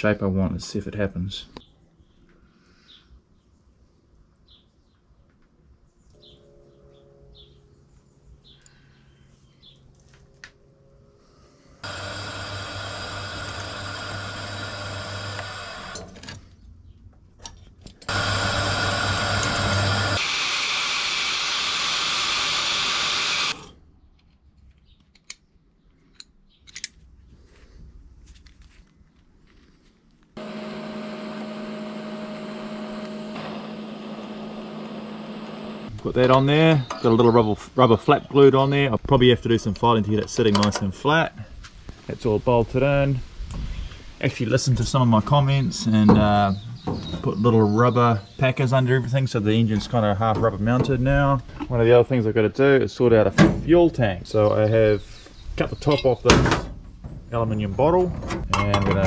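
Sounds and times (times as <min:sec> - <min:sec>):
welder arc buzzing hum: 0:11.8 - 0:16.0, 0:18.1 - 0:23.7, 0:30.4 - 0:35.9
angle grinder cutting metal: 0:11.8 - 0:16.1, 0:18.1 - 0:23.7, 0:30.4 - 0:35.9.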